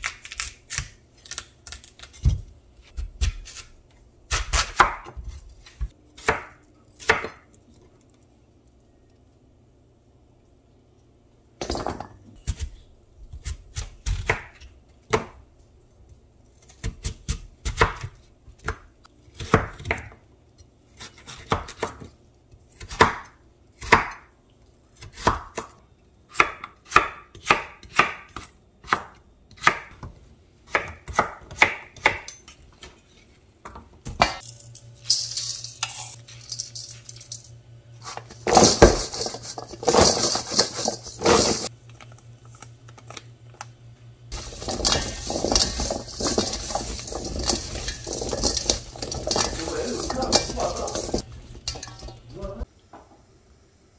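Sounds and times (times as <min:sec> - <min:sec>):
knife chopping on wooden board: 0:04.3 - 0:07.4, 0:30.7 - 0:32.3
vegetable sticks tossed in metal bowl: 0:34.4 - 0:41.7, 0:44.3 - 0:52.6.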